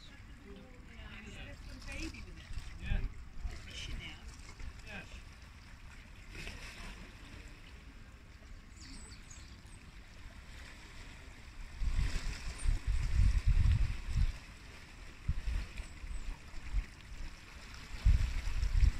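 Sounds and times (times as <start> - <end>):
water lapping against a wall: 0.0 - 18.9
wind buffeting the microphone: 0.8 - 5.1, 11.6 - 18.9.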